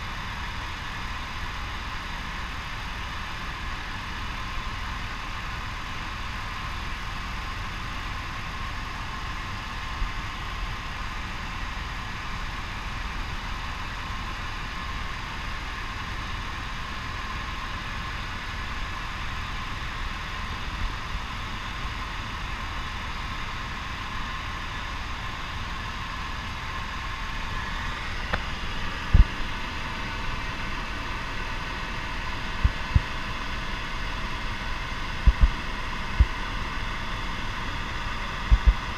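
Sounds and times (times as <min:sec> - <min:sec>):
helicopter whine and rumble: 0:00.0 - 0:38.9
short low thumps: 0:35.2 - 0:35.6, 0:38.5 - 0:38.9.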